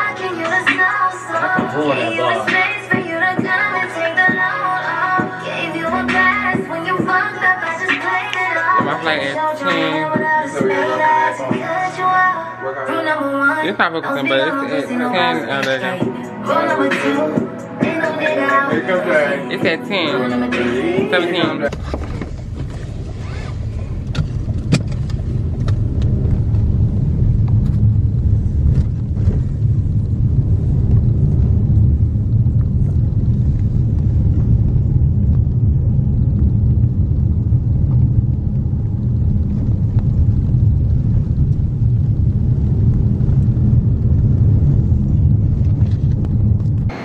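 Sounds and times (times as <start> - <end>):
car interior rumble: 21.6 - 47.0.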